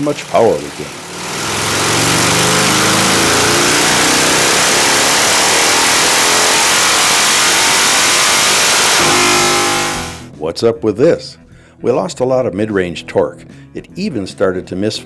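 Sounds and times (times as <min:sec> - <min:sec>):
engine misfiring: 0:00.0 - 0:10.3
motorcycle engine revving: 0:00.3 - 0:10.3.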